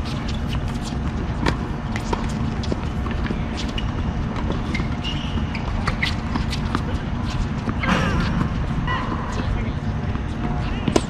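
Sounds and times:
tennis balls bouncing and struck: 0.0s - 11.0s.

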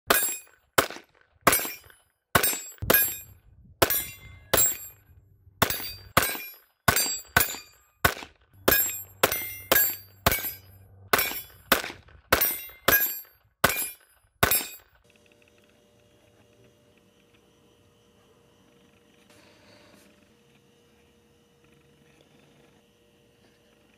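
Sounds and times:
pistol shots: 0.1s - 3.2s, 5.6s - 14.8s.

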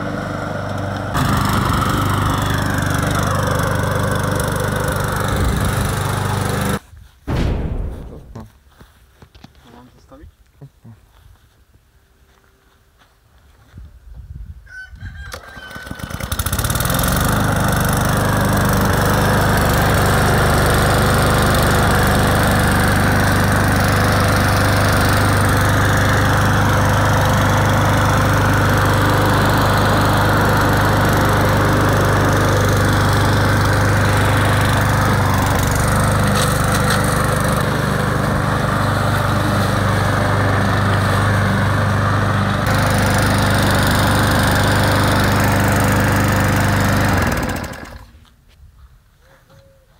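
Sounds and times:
lawn mower engine running: 0.0s - 6.8s, 15.3s - 48.3s.

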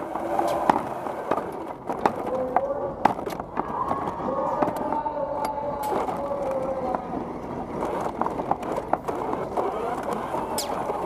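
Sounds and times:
knocks and rattles: 0.0s - 11.0s
robot drive motors whining: 3.2s - 11.0s.

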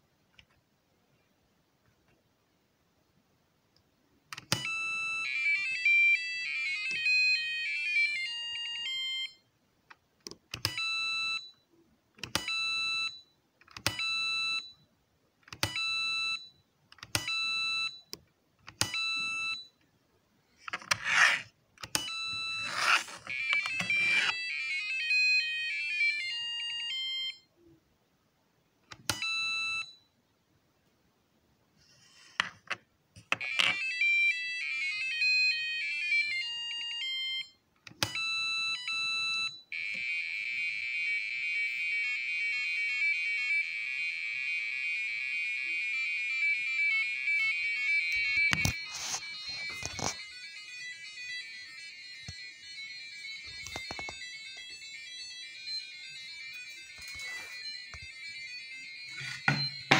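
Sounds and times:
electronic beep tunes: 22.0s - 24.4s, 55.4s - 59.9s.

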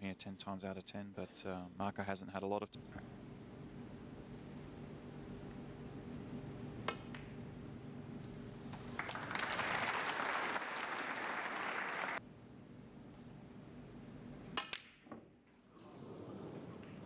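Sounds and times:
audience applause: 8.9s - 12.2s.

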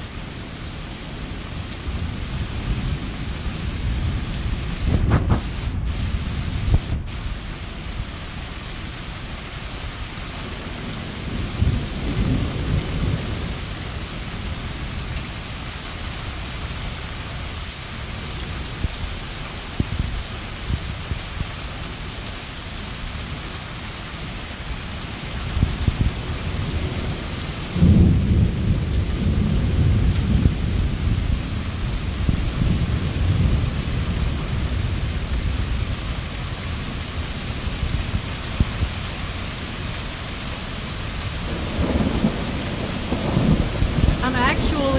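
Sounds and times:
steady rain hiss: 0.0s - 44.9s
rolling thunder: 1.9s - 7.2s, 10.6s - 15.0s, 25.5s - 36.1s, 41.1s - 44.9s.

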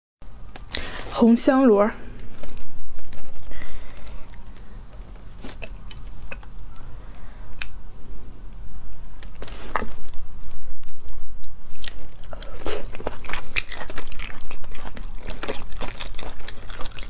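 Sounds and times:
steady low hum: 0.2s - 17.0s
wet squishes: 11.7s - 17.0s.

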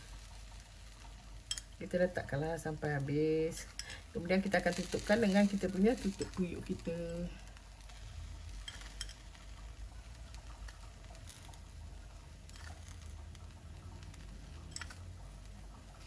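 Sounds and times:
low steady hum: 0.0s - 16.0s
sugar sprinkling ticks: 0.0s - 16.0s.

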